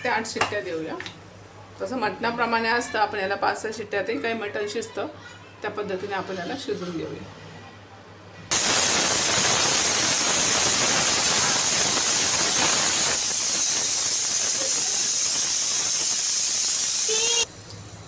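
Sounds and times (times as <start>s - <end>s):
pressure cooker whistling: 8.5s - 17.5s.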